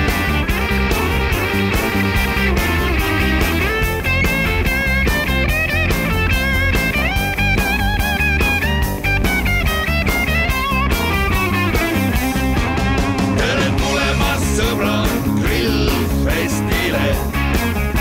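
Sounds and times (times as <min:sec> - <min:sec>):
bass: 0:00.0 - 0:18.0
electric guitar lead melody: 0:00.0 - 0:18.0
steady drum beat: 0:00.0 - 0:18.0.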